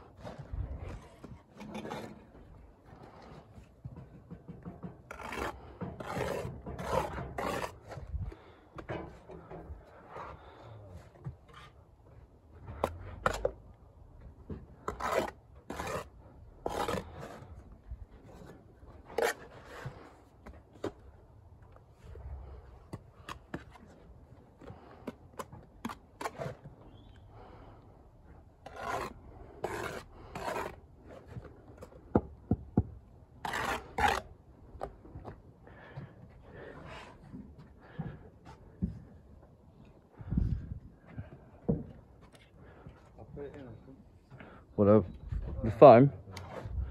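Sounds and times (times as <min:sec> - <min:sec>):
trowel scraping mortar: 0:00.1 - 0:02.3, 0:04.8 - 0:08.1, 0:14.8 - 0:17.6, 0:18.3 - 0:20.2, 0:24.8 - 0:26.7, 0:28.6 - 0:31.4, 0:33.4 - 0:34.4.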